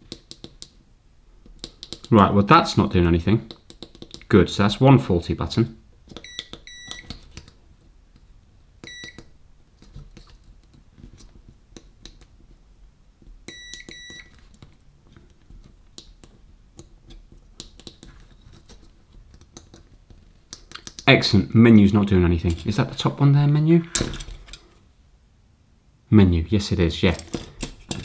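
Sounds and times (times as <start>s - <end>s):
multimeter continuity beeps: 6.2s - 7.1s, 8.8s - 9.2s, 13.5s - 14.3s
probe tips and buttons clicking: 8.8s - 9.3s, 13.4s - 14.4s.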